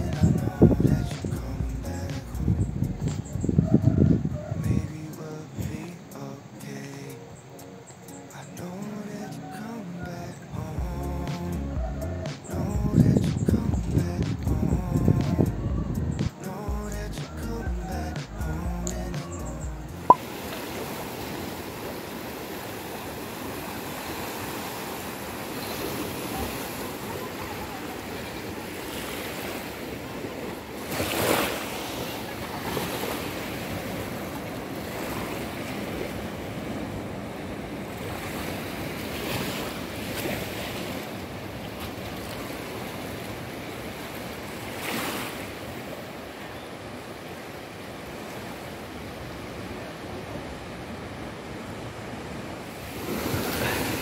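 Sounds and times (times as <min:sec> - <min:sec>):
sea waves washing on beach: 0:00.0 - 0:07.1, 0:20.1 - 0:54.0.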